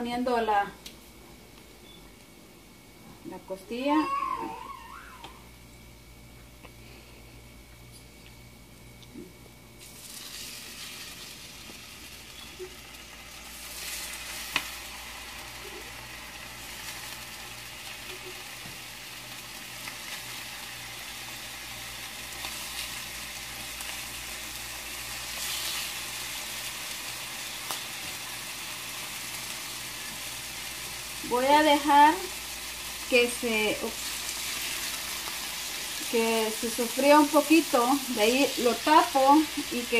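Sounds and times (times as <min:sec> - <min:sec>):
ribs sizzling in hot oil: 0:09.8 - 0:39.9.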